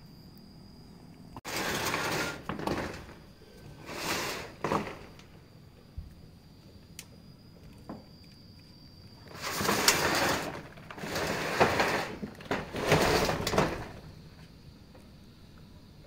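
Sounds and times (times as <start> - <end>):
metal roofing sheet scraping: 1.4 - 5.2, 9.2 - 14.1.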